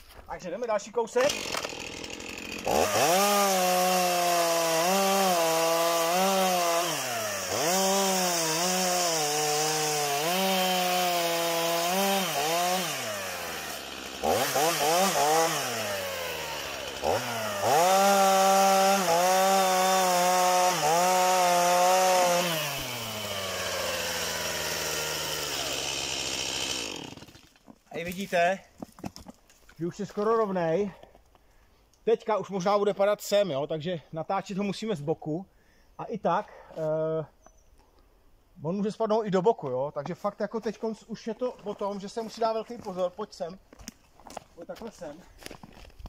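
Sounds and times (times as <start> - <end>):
chainsaw cutting wood: 1.1 - 28.2
chainsaw idling: 1.2 - 27.6.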